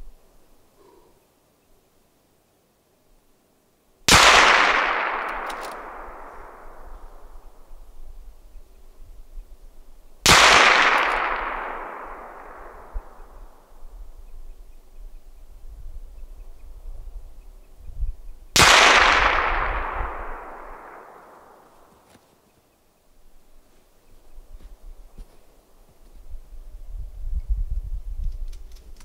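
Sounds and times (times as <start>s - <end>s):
rifle shots with echo: 4.1s - 7.4s, 10.2s - 13.8s, 18.5s - 22.0s.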